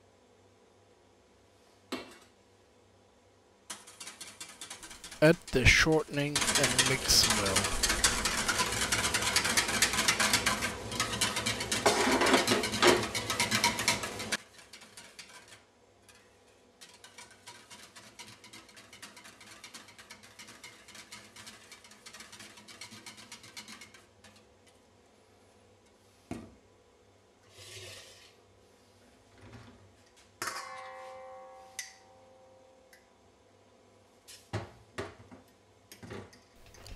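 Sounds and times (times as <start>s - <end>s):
wire whisk rattling in metal bowl: 3.7s - 24.4s, 36.6s - 36.9s.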